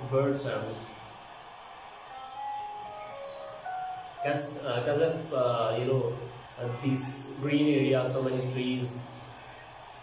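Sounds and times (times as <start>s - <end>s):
birds whistling: 3.0s - 4.2s.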